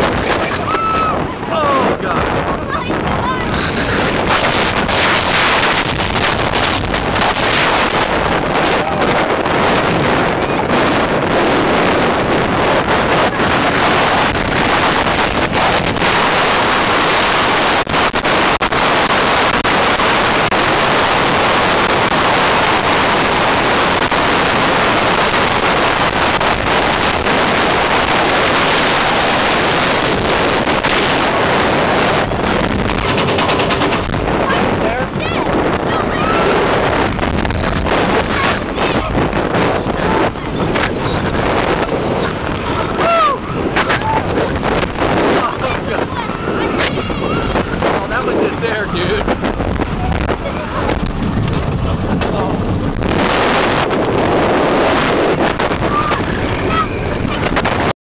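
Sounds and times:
wind buffeting microphone: 0.0s - 57.9s
sharp crackling knocks: 4.1s - 8.0s, 32.3s - 34.4s, 49.3s - 54.2s.

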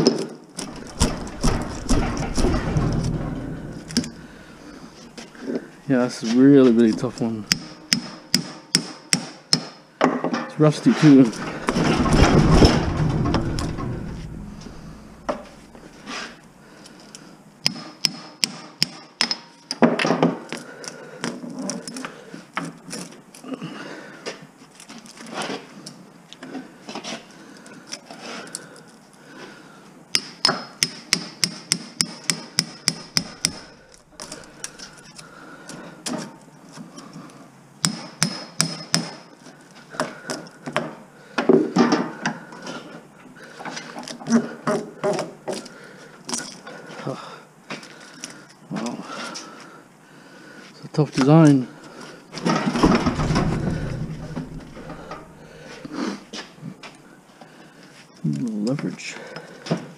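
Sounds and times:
sharp metal strikes and clicks: 7.5s - 9.8s.

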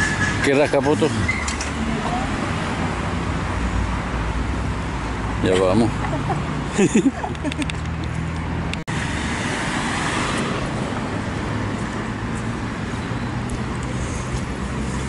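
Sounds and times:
road traffic rushing: 0.0s - 15.0s.

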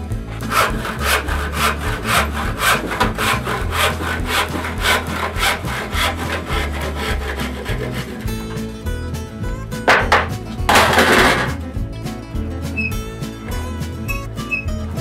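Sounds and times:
handsaw cutting board: 0.2s - 8.6s, 9.9s - 11.5s.

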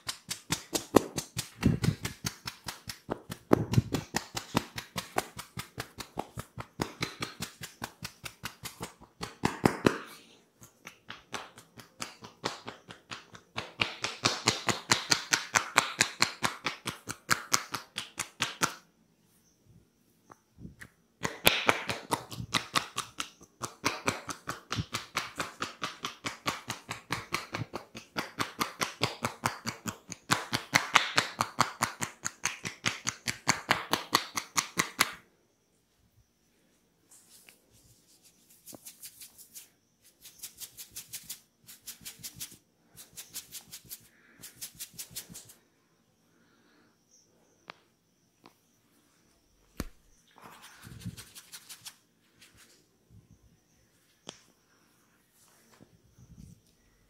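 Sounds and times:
hands tapping on head: 0.0s - 18.8s, 21.2s - 35.2s.

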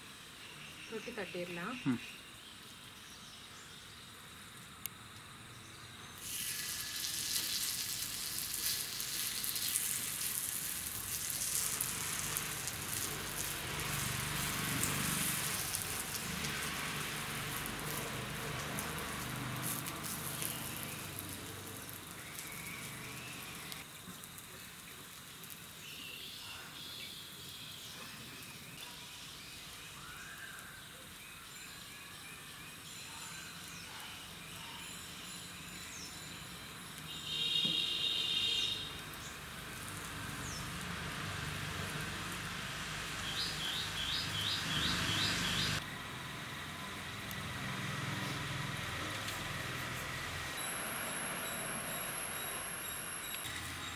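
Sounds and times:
faint outdoor ambience: 0.0s - 53.9s
dough sizzling on griddle: 6.1s - 31.8s, 35.0s - 53.9s
birds calling: 43.2s - 45.8s.

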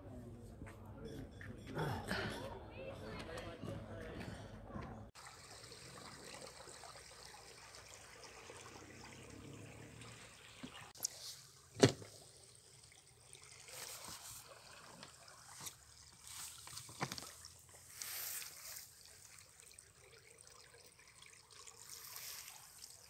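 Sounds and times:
water lapping at boat: 5.2s - 23.0s.

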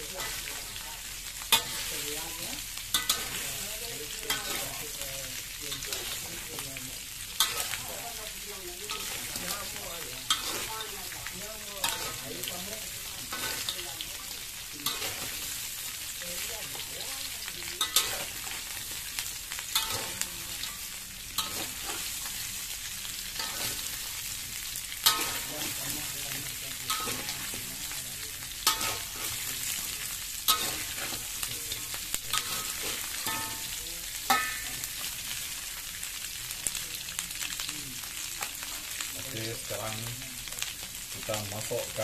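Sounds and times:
meat sizzling in a wok: 0.0s - 42.0s
metal spatula clanking on wok: 2.9s - 3.5s, 11.8s - 12.6s, 19.7s - 20.8s, 25.0s - 27.6s, 28.6s - 29.4s, 30.5s - 31.4s, 32.3s - 34.9s.

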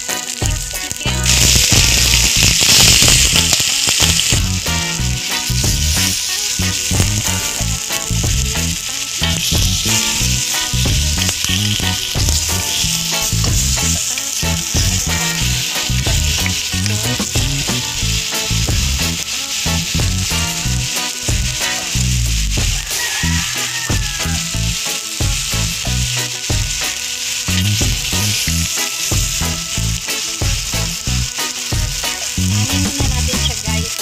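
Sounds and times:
background music: 0.0s - 34.0s
chicken sizzling in hot oil: 0.0s - 34.0s
wooden spatula stirring: 3.8s - 30.9s.

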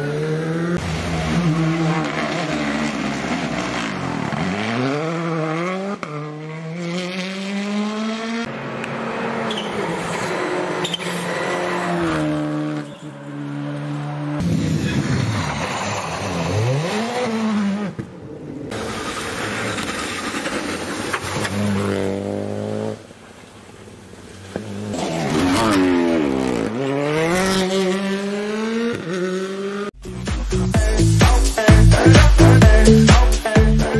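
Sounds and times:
rally car engines revving: 0.0s - 30.0s
music: 30.0s - 33.9s.

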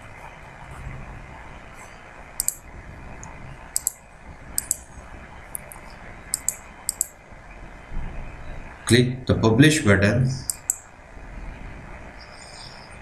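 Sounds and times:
computer mouse button clicks: 2.4s - 2.6s, 6.4s - 7.1s.

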